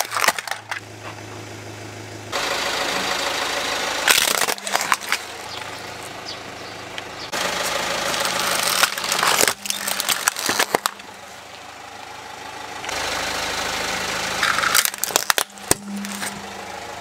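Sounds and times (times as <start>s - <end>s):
plastic toys cracking under tyre: 0.0s - 0.8s, 4.1s - 5.4s, 8.1s - 11.1s, 14.4s - 16.4s
car engine running: 0.0s - 17.0s.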